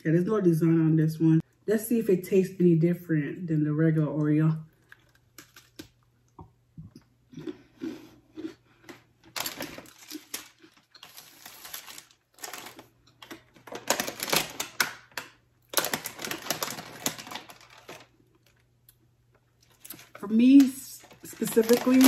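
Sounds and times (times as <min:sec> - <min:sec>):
cookie crunching: 0:04.7 - 0:06.4, 0:07.0 - 0:22.0
plastic package crinkling: 0:04.8 - 0:06.0, 0:09.2 - 0:18.7, 0:19.6 - 0:22.0.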